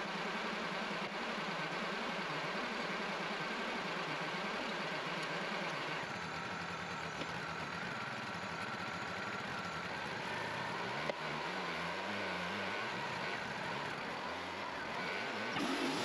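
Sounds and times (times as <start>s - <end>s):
sawmill engine running: 5.2s - 16.0s.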